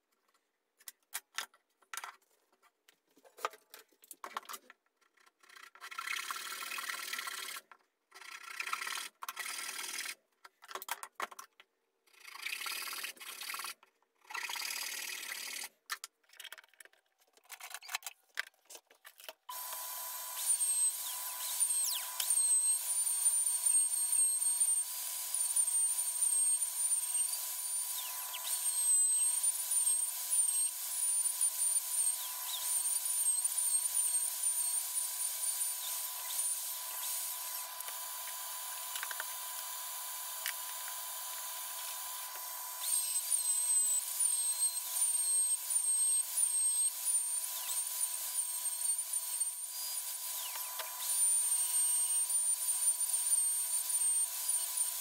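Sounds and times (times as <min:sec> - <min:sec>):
router cutting wood: 0:19.5 - 0:55.0.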